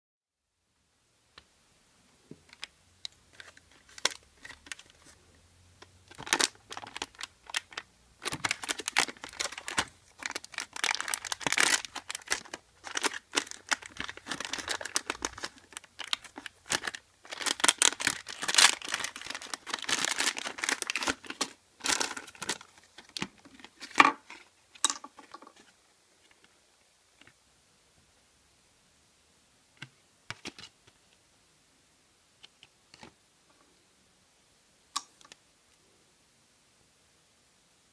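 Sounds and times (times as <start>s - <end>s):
foil packet crinkling and tearing: 3.3s - 5.1s, 6.1s - 24.0s.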